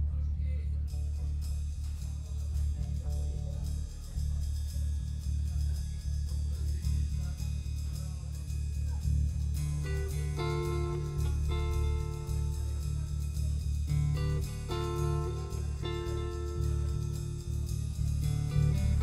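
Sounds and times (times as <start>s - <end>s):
guitar held melody notes: 9.6s - 19.0s.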